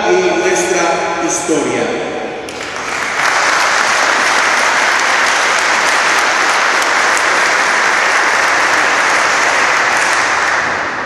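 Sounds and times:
audience applauding: 2.5 - 11.0.

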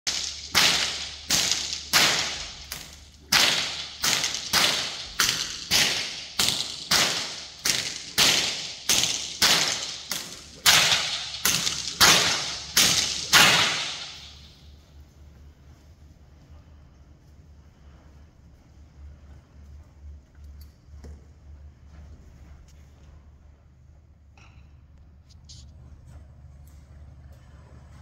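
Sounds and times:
whip cracking with echo: 0.1 - 14.7.

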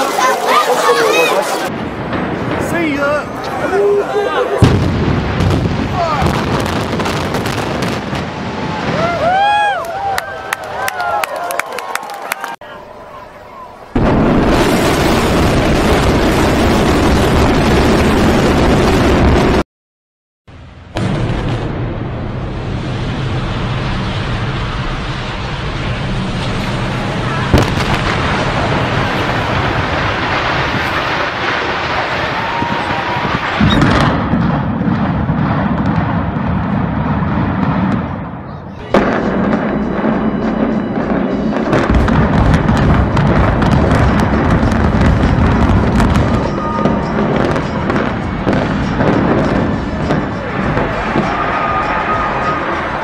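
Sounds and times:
demolition charges crackling: 0.0 - 10.1, 21.0 - 40.2, 41.2 - 53.0
deep rumble of collapse: 1.6 - 10.8, 14.0 - 19.6, 20.5 - 53.0
explosive blast: 1.7 - 3.9, 4.6 - 9.6, 14.0 - 19.6, 20.5 - 53.0.

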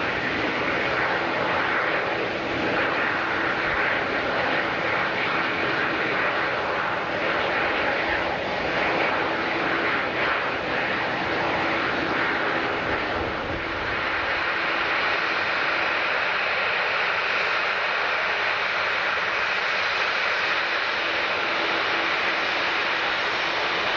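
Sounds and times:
jet engines rushing: 0.0 - 23.9.

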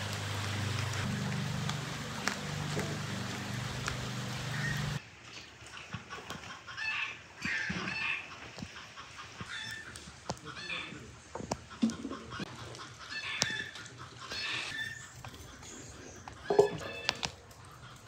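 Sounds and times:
steady hum and hiss: 0.0 - 5.0
hens clucking: 5.7 - 18.0.

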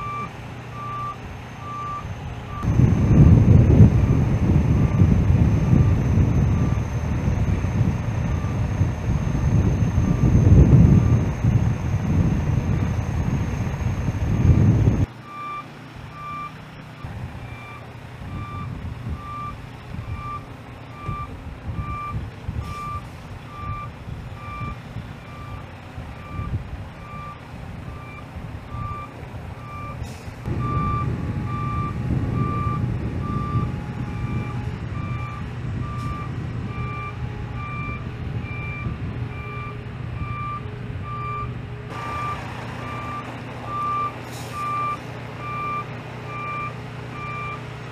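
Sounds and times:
loud rumble: 0.0 - 15.1, 30.3 - 39.3, 41.8 - 46.4
diesel engine running: 0.0 - 47.9
truck backup alarm beeping: 0.0 - 47.9.

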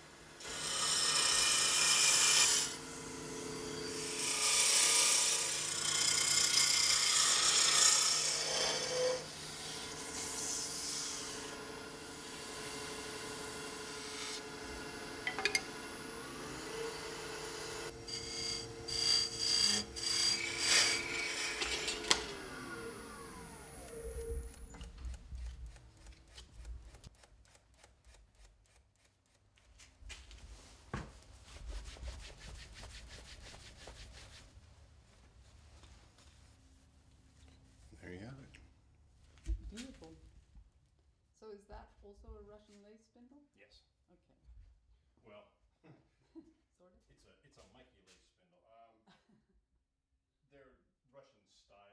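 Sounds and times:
turning tool cutting wood: 0.1 - 29.4
lathe humming: 6.1 - 25.0.

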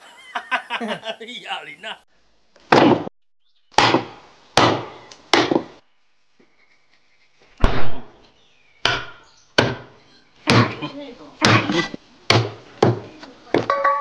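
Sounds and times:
cleaver chopping bones: 2.6 - 3.1, 3.7 - 5.7, 8.8 - 10.8, 11.4 - 14.0.

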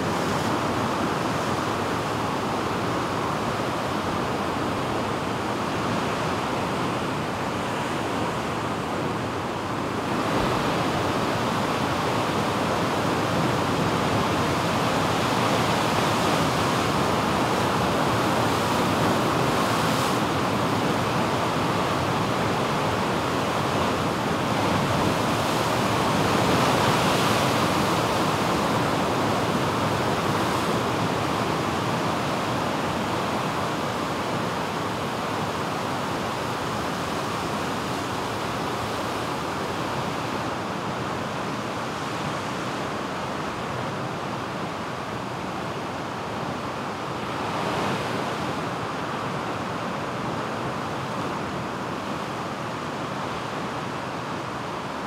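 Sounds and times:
ocean surf breaking on rocks: 7.6 - 51.7.

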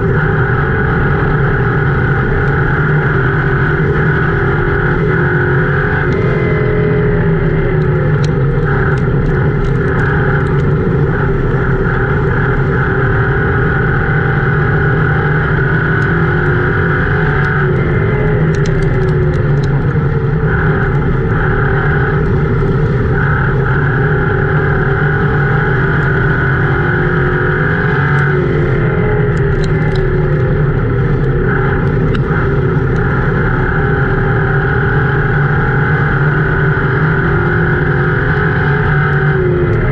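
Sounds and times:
race car engine running hard: 0.0 - 39.9
sharp clicks: 17.3 - 20.2, 29.3 - 33.1.

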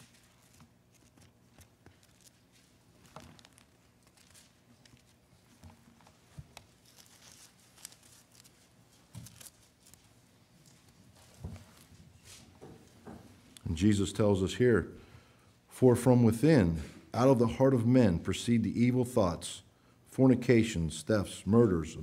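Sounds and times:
thin pages turning: 0.0 - 11.9
low room hum: 0.0 - 22.0.

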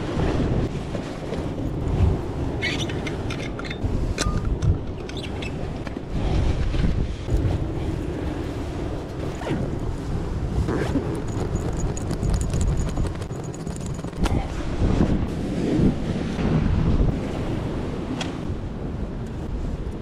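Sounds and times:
sea surf: 0.0 - 11.8, 14.2 - 20.0
wind buffeting microphone: 0.0 - 20.0
backpack rustling: 10.7 - 14.2.

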